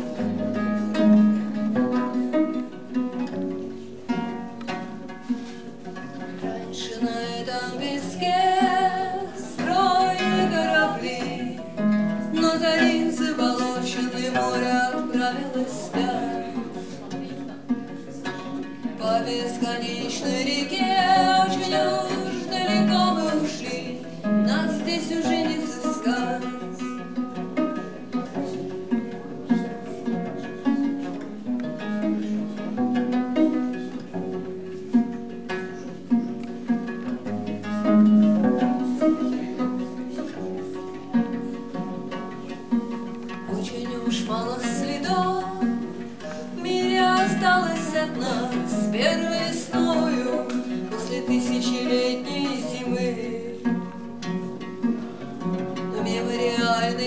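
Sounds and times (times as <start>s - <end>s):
plucked bowed-string instrument: 0.0s - 57.0s
woman singing: 6.7s - 16.8s, 19.0s - 27.0s, 43.5s - 53.9s, 55.9s - 57.0s.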